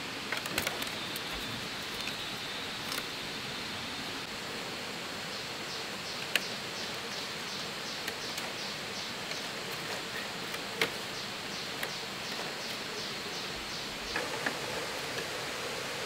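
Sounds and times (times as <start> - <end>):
steady rushing hiss: 0.0 - 16.0.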